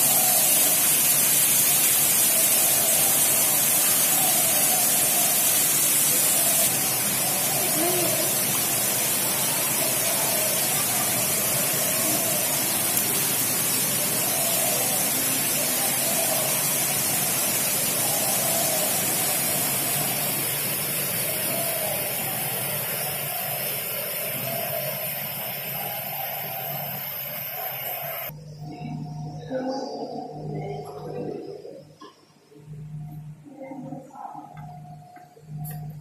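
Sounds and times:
steady hiss: 0.0 - 28.8
faint voices: 6.0 - 17.2, 27.6 - 32.0.

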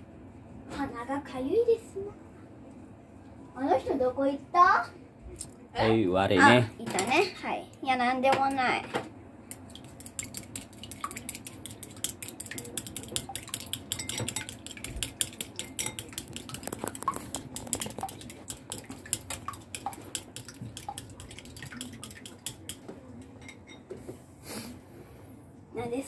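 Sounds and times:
chopsticks clicking against bowl: 9.5 - 22.8.

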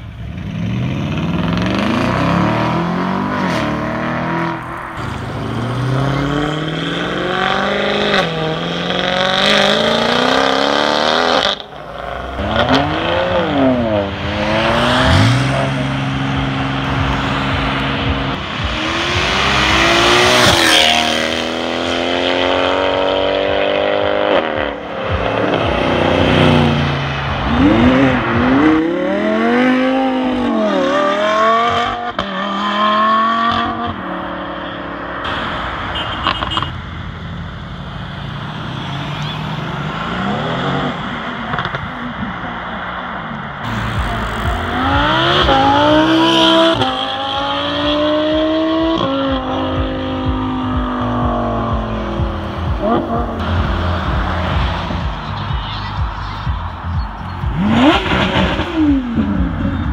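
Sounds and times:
cars accelerating hard: 0.0 - 59.9
engine rev blips: 43.6 - 59.9.

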